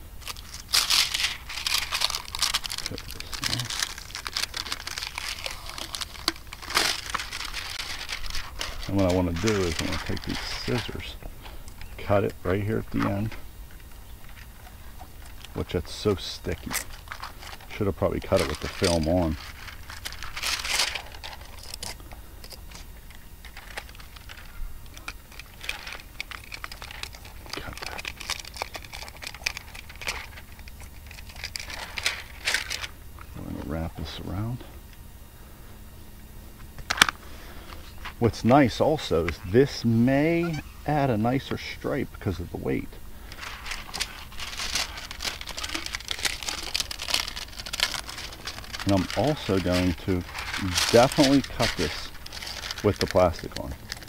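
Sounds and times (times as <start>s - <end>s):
plastic film peeled off tape: 0.2s - 11.0s, 16.9s - 22.9s, 43.3s - 54.0s
tape peeling off fingers: 43.4s - 54.0s.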